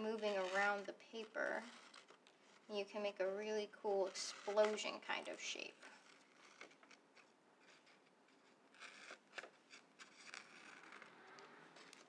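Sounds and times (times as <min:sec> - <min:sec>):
scissors cutting paper: 0:00.0 - 0:02.2, 0:04.0 - 0:11.1, 0:11.7 - 0:12.0.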